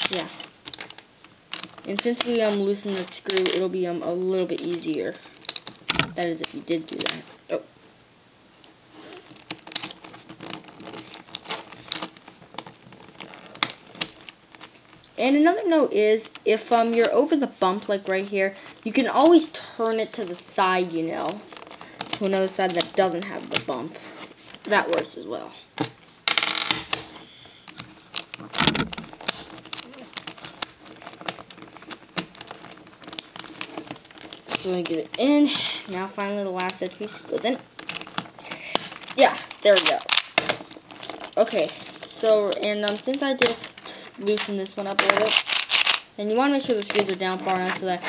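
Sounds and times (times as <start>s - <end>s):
plastic puzzle pieces clicking: 0.0s - 7.2s, 9.3s - 14.8s, 21.1s - 23.7s, 25.8s - 48.0s.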